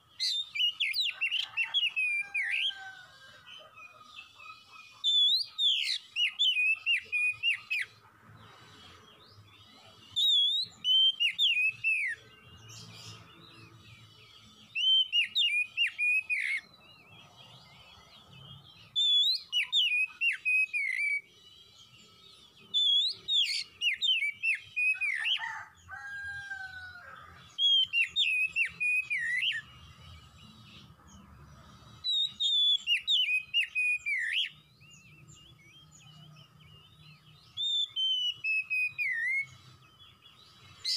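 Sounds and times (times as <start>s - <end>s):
bird singing whistled phrases: 5.1s - 7.9s, 9.8s - 12.2s, 14.7s - 16.7s, 19.0s - 21.3s, 22.6s - 25.5s, 27.6s - 29.7s, 32.1s - 36.6s, 37.5s - 39.6s.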